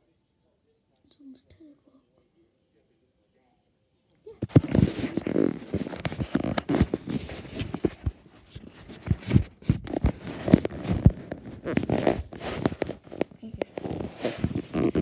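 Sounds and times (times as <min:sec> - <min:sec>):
fabric rubbing: 0:04.4 - 0:15.0
microphone handling knocks and bumps: 0:04.4 - 0:15.0.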